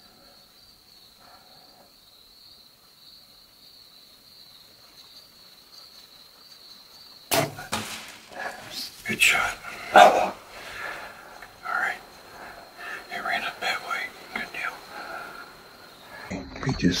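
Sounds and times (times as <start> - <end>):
crickets droning: 0.0 - 17.0
bow shot snap and clatter: 7.3 - 8.4.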